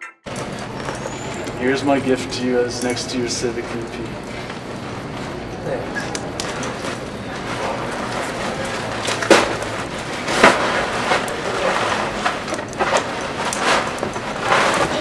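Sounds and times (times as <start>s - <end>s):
gift wrapping crinkling: 6.2s - 15.0s
paper crackles: 6.3s - 15.0s.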